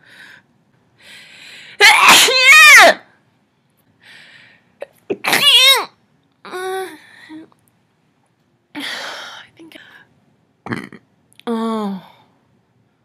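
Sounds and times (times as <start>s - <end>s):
woman's high-pitched outbursts: 1.8s - 3.0s, 5.2s - 7.0s.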